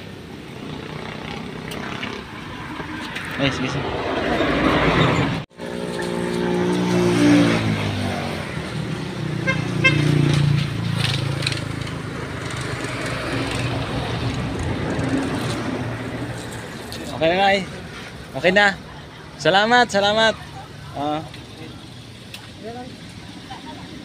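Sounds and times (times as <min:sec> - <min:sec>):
vehicle engine humming: 0:00.0 - 0:24.0
hose water splashing into jugs: 0:10.0 - 0:18.4.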